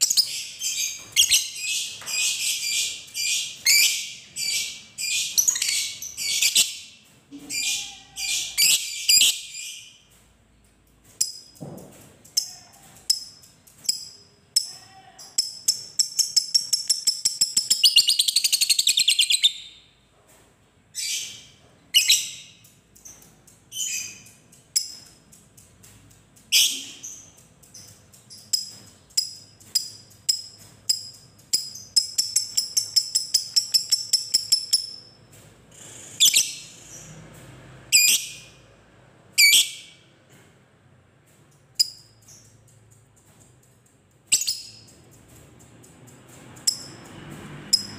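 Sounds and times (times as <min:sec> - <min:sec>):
lovebird shrill chirps: 0:07.5 - 0:09.7
lovebird rattling trill: 0:26.5 - 0:35.2, 0:44.3 - 0:47.1.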